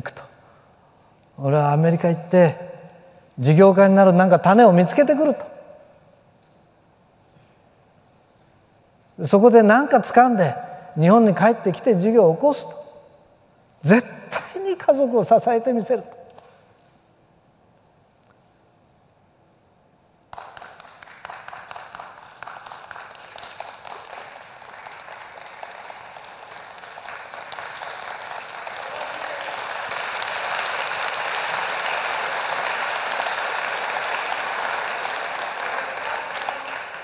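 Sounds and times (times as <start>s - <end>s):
audience applause: 20.3s - 37.0s.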